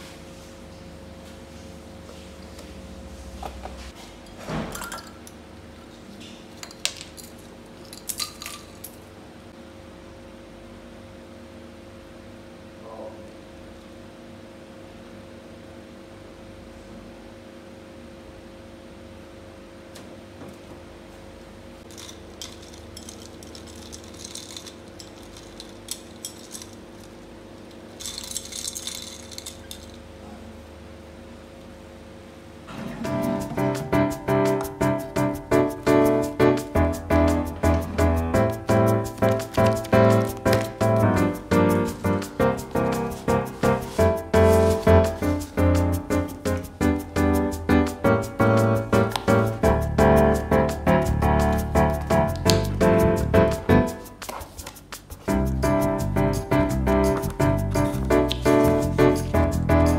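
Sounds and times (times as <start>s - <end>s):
steady low hum: 8.8s - 54.2s, 54.9s - 59.9s
ice cubes clinking in glass: 21.9s - 26.8s, 28.0s - 30.0s.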